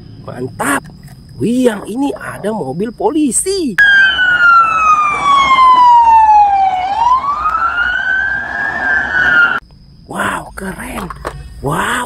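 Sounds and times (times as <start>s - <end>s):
police siren wail: 3.8s - 9.6s.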